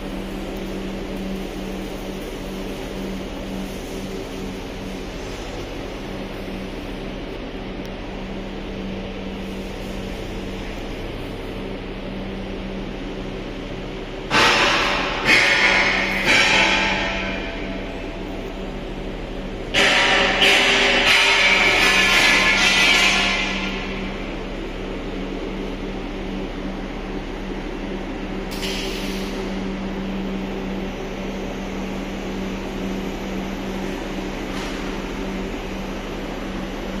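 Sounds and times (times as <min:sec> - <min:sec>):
wire granulator humming: 0:00.0 - 0:37.0
loud sudden machine noise: 0:14.3 - 0:24.6.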